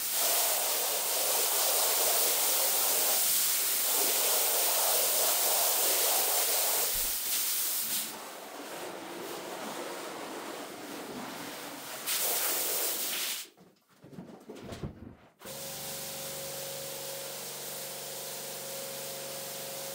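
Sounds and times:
hose nozzle spraying water: 0.0 - 9.4, 10.0 - 13.5
wet rug being handled: 8.1 - 12.2.

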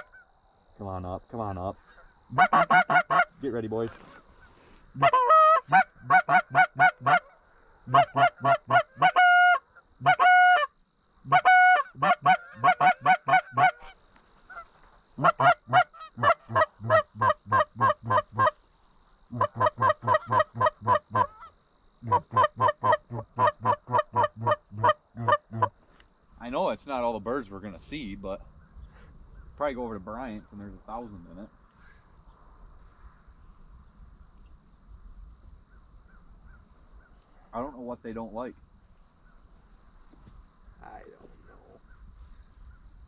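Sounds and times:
goose call clucks: 0.0 - 0.2, 1.9 - 18.6, 19.3 - 25.8
goose call honks: 0.0 - 0.2, 2.3 - 4.2, 5.0 - 18.6, 19.3 - 25.8.

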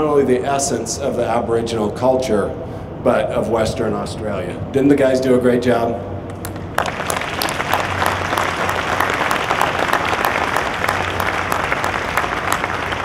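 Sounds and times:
low steady hum: 0.0 - 13.0
audience applauding: 6.4 - 13.0.

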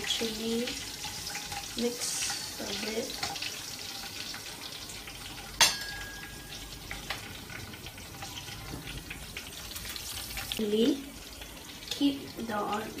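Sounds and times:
chilies sizzling in hot oil: 0.0 - 13.0
metal clank ringing: 5.6 - 6.6.

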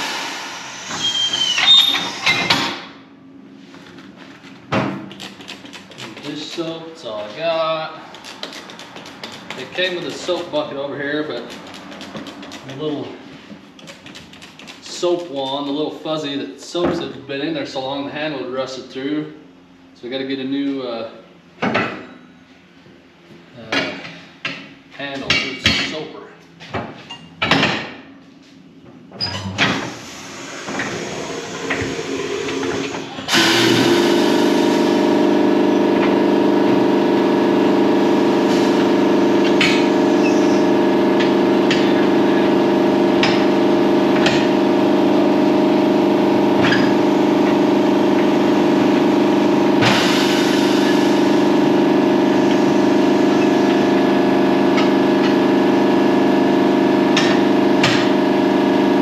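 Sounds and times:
air compressor motor humming: 0.0 - 3.0, 3.6 - 15.4, 29.4 - 59.0.

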